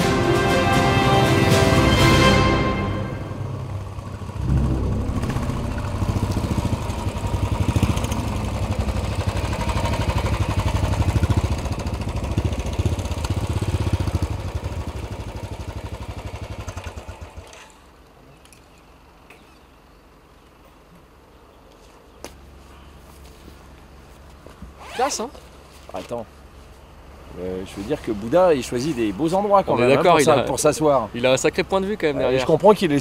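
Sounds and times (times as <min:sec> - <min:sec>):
quiet outdoor background: 0:02.0 - 0:33.0
motorcycle engines running: 0:02.4 - 0:18.6.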